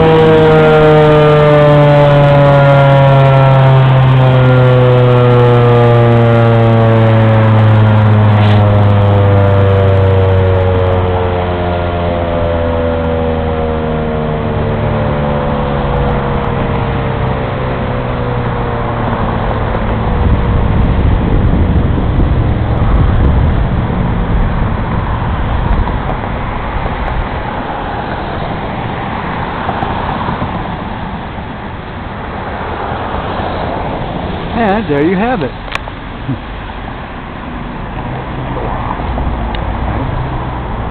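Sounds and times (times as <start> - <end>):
siren winding down: 0.0 - 25.2
road traffic noise: 0.0 - 40.9
vehicle passing: 0.0 - 40.9.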